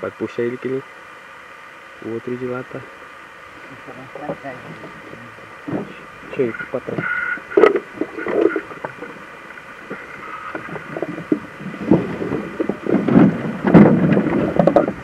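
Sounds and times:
water splashing: 0:04.6 - 0:15.0
knocks against a canoe: 0:09.8 - 0:15.0.

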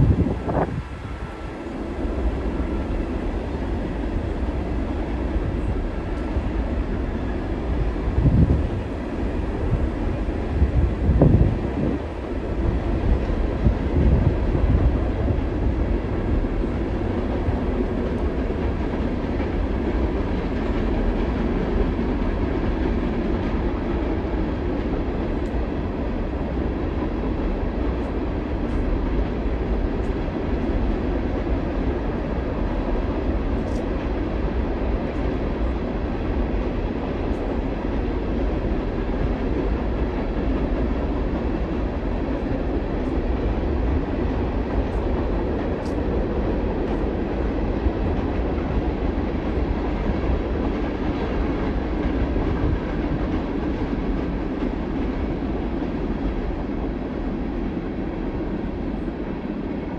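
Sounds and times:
freight train cars rumbling: 0:00.0 - 0:59.9.

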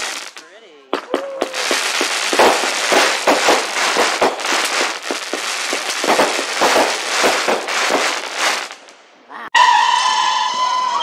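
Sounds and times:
firework crackle: 0:00.0 - 0:09.0
firework pops: 0:01.0 - 0:08.7.

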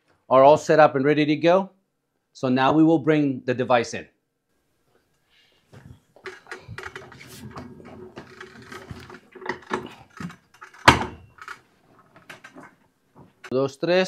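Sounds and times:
cart casters rumbling: 0:06.2 - 0:12.8
metal rattles: 0:06.2 - 0:13.5.

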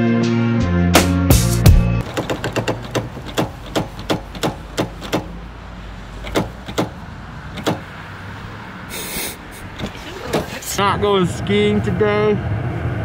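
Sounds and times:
car door handle clacking: 0:02.0 - 0:05.4, 0:06.1 - 0:08.0, 0:09.6 - 0:10.6
low rumble: 0:10.9 - 0:13.0.

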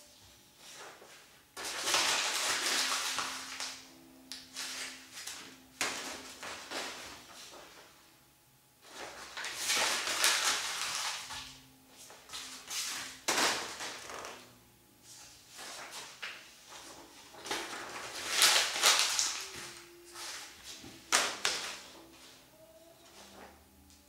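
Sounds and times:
paper crinkling: 0:00.6 - 0:07.7, 0:08.8 - 0:11.5, 0:15.6 - 0:22.0.

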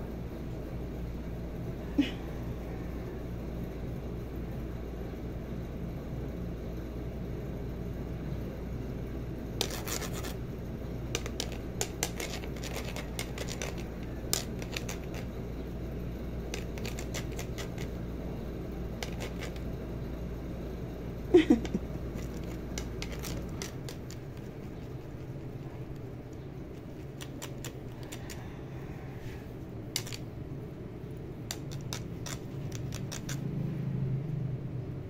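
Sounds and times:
sharp clicks and scratches: 0:09.6 - 0:10.4, 0:11.1 - 0:15.4, 0:16.5 - 0:18.0, 0:19.0 - 0:19.8, 0:21.6 - 0:28.4, 0:30.0 - 0:30.3, 0:31.5 - 0:33.5.

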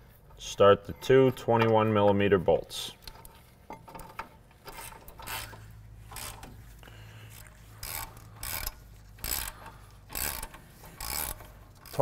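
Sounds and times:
socket ratchet clicking: 0:07.8 - 0:12.0.

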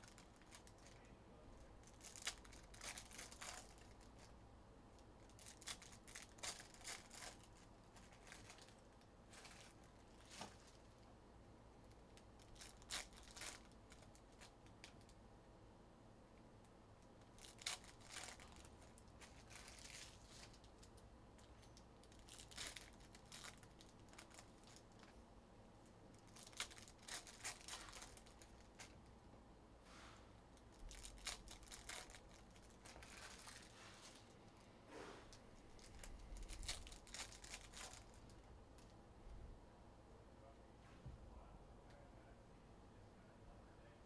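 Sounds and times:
card pack wrappers crinkling: 0:00.0 - 0:01.0, 0:01.8 - 0:04.3, 0:05.2 - 0:10.9, 0:12.4 - 0:15.0, 0:17.2 - 0:25.1, 0:26.2 - 0:29.0, 0:30.6 - 0:34.3, 0:35.3 - 0:38.4.

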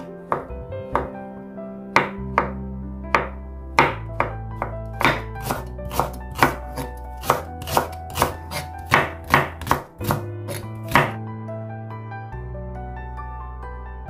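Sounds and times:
knife chopping on wooden board: 0:03.2 - 0:11.2.

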